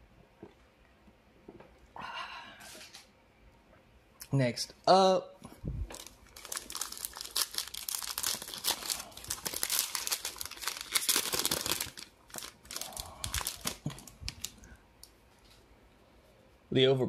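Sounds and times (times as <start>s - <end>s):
plastic wrapper crinkling: 5.9s - 15.2s.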